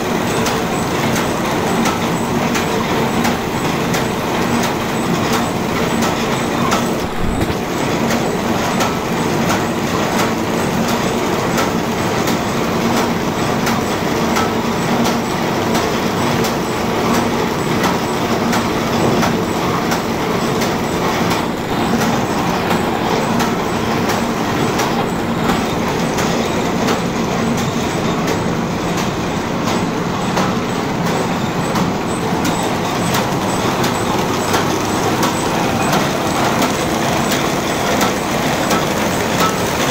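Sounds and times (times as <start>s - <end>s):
machine clattering: 0.0s - 39.9s
low machine hum: 15.3s - 39.9s.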